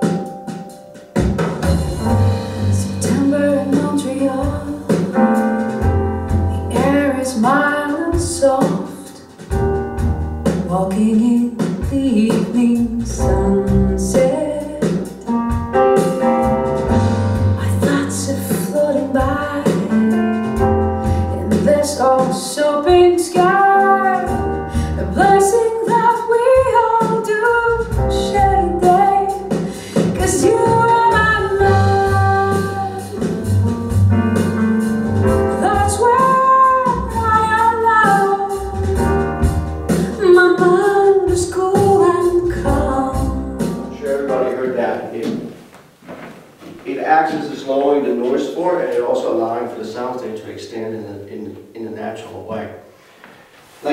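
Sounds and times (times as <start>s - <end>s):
piano accompaniment: 0.0s - 50.4s
deep bass notes: 1.2s - 7.5s, 9.5s - 11.3s, 12.0s - 22.2s, 23.8s - 25.6s, 27.6s - 40.6s, 41.2s - 45.3s
woman singing: 1.6s - 5.2s, 6.5s - 9.3s, 10.6s - 15.2s, 17.6s - 20.2s, 21.1s - 33.4s, 35.5s - 43.8s.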